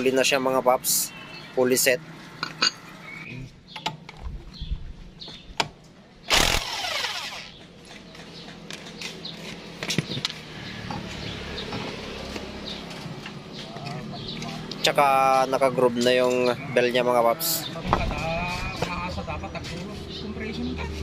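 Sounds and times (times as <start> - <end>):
impact wrench burst and spin-down: 6.3 - 7.6.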